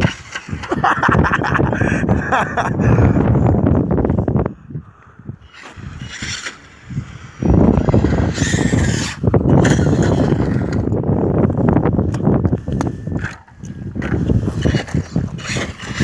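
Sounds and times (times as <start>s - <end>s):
electric motor whining: 5.4s - 11.1s, 12.8s - 16.0s.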